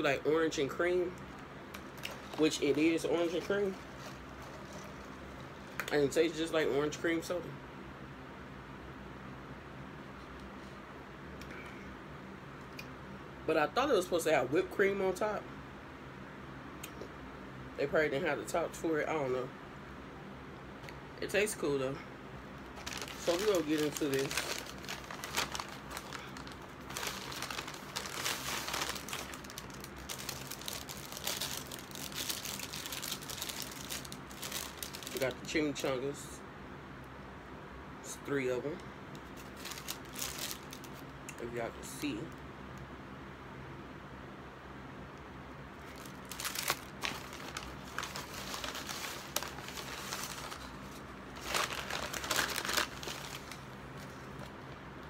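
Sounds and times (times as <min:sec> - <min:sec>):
paper bag rustling and crinkling: 0:01.8 - 0:05.8, 0:22.7 - 0:35.6, 0:39.3 - 0:41.1, 0:45.8 - 0:54.6.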